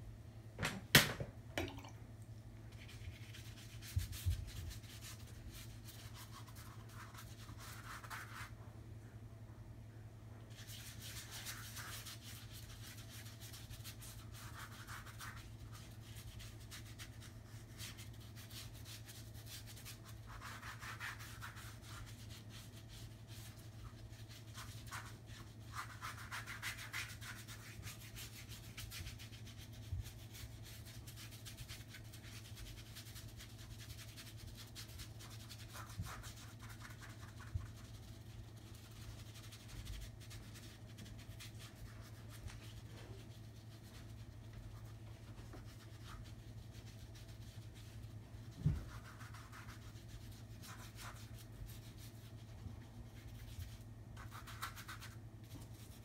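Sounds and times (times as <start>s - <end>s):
paintbrush scrubbing on canvas: 2.7s - 8.6s, 10.5s - 56.0s.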